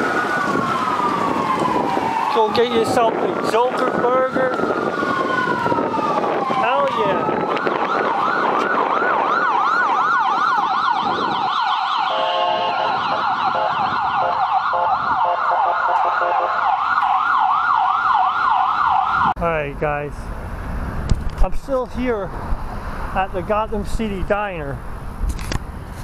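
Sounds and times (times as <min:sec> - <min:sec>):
electronic yelp siren: 0:00.0 - 0:19.4
stepped warble siren: 0:00.0 - 0:19.4.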